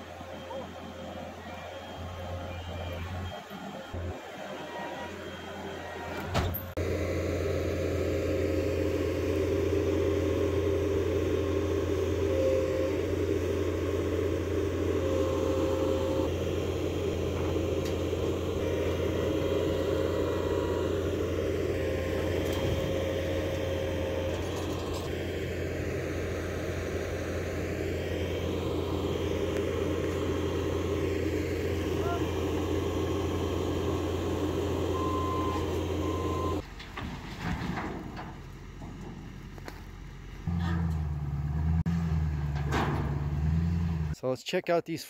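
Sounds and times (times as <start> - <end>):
diesel engine running under load: 0.0 - 44.2
high-pitched whine: 6.8 - 36.6.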